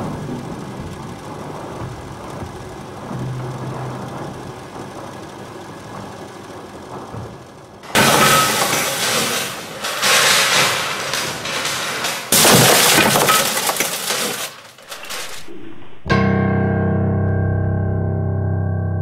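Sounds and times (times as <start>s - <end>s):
debris crashing and shattering: 0.0s - 15.6s
electronic keyboard chord: 16.1s - 19.0s.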